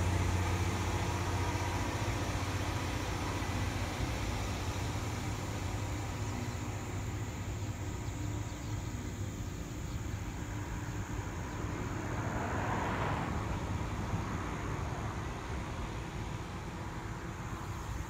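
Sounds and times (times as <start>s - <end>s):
car passing: 10.6s - 17.7s.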